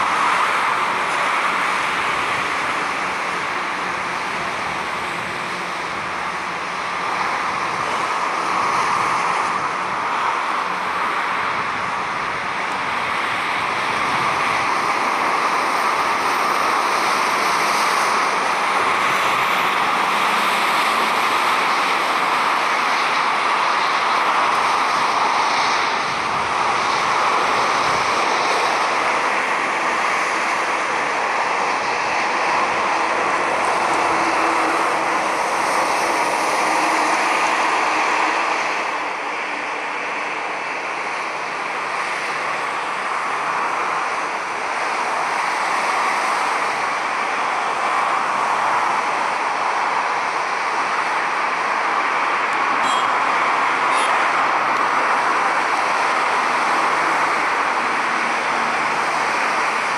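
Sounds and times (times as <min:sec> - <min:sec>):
jet engines rushing: 0:00.0 - 0:59.9.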